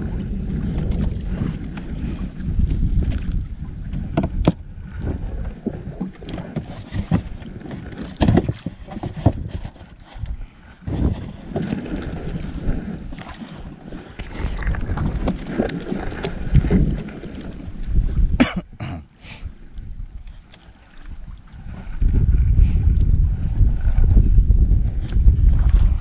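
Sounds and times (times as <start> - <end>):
wind rumbling on microphone: 0.0 - 26.0
knocks and clicks on wooden boat: 3.9 - 12.0.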